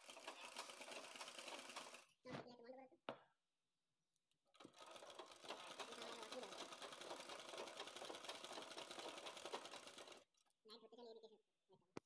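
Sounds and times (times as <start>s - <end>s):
sewing machine stitching: 0.0s - 2.2s, 4.5s - 10.3s.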